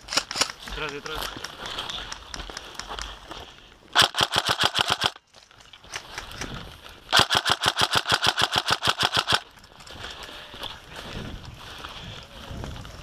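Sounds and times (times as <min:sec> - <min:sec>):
airsoft rifle firing bursts: 0:04.0 - 0:05.2, 0:07.1 - 0:09.5.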